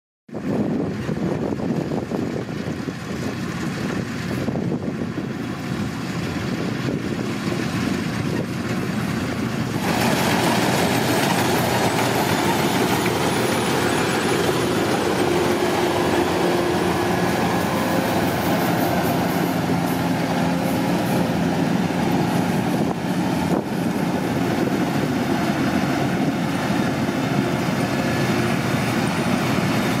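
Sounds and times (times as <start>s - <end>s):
combine harvester engine drone: 0.3s - 30.0s
machinery clattering: 6.1s - 30.0s.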